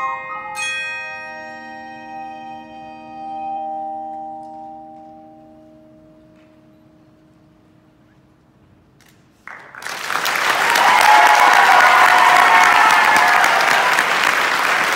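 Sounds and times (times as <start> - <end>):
audience applause: 9.4 - 14.9.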